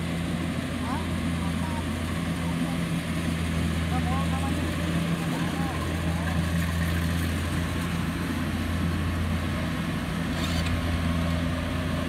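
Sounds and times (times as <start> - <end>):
combine harvester engine droning: 0.0 - 12.0.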